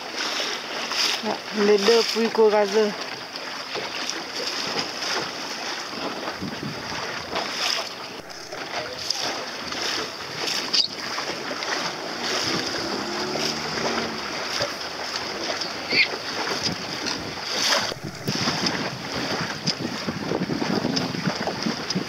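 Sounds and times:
water lapping against boat hull: 0:00.0 - 0:22.0
wind buffeting microphone: 0:05.1 - 0:22.0
faint voices: 0:07.5 - 0:10.2.

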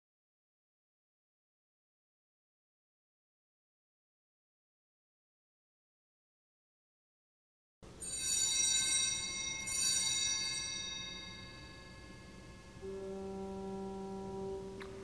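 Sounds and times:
small bell ringing: 0:08.0 - 0:12.8
low held note: 0:12.3 - 0:15.0.

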